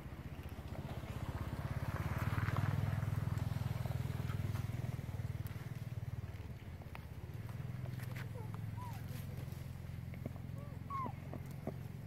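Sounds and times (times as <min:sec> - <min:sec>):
vehicle engine drone: 0:00.0 - 0:12.0.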